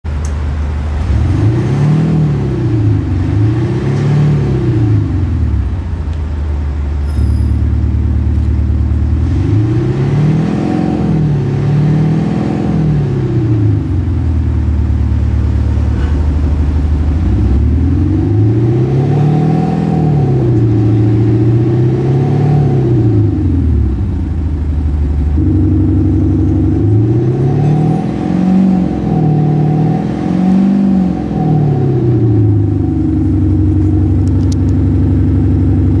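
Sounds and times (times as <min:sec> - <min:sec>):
car engine idling: 0:00.1 - 0:01.6, 0:04.4 - 0:36.0.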